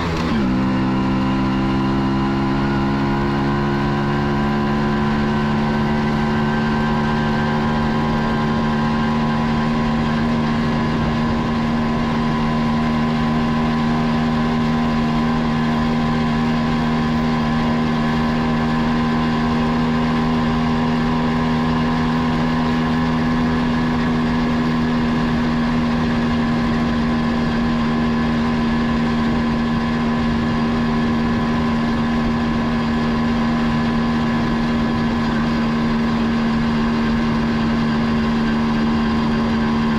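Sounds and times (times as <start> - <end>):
motorcycle engine running: 0.0 - 39.9
road and wind noise: 0.0 - 39.9.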